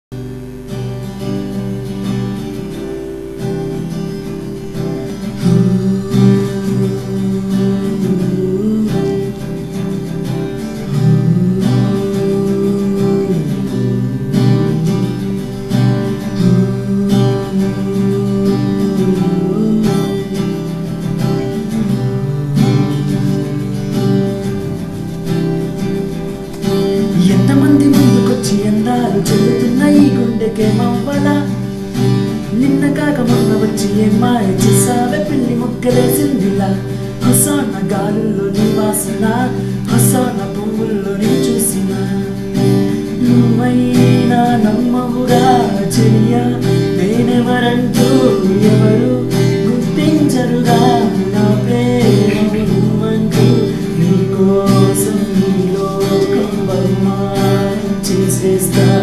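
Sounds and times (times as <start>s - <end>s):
acoustic guitar melody: 0.0s - 59.0s
man singing: 4.4s - 59.0s.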